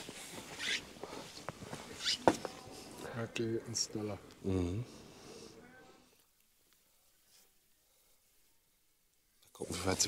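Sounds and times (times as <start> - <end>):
faint voice: 5.5 - 6.2.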